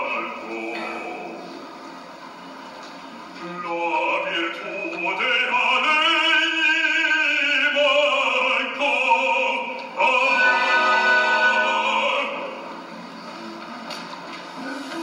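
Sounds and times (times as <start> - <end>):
bass voice singing opera: 0.0 - 1.6, 3.4 - 12.7
orchestra playing: 10.2 - 12.5.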